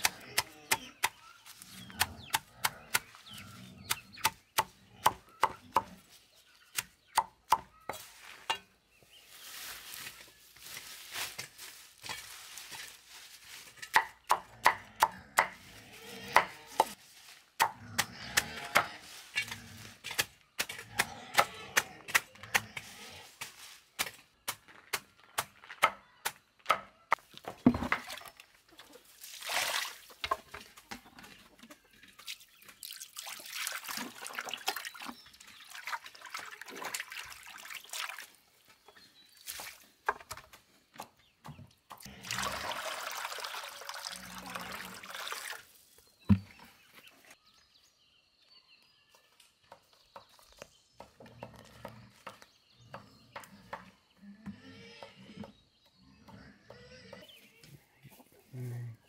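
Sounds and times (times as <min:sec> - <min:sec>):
leaves rustling: 0:08.0 - 0:13.9.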